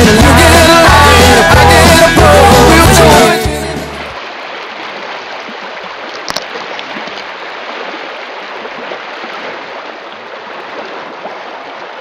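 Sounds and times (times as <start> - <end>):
river water rushing: 3.0 - 12.0.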